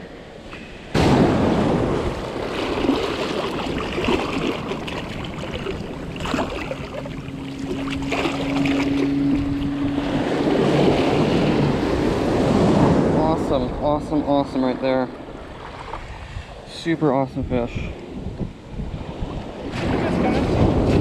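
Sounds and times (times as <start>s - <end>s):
small waves washing and foaming: 0.0s - 21.0s
wind on microphone: 0.9s - 21.0s
water splashing: 1.0s - 16.1s.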